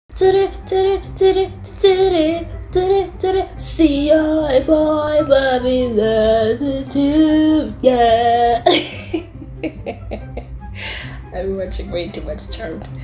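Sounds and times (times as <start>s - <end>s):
woman singing: 0.1s - 9.2s.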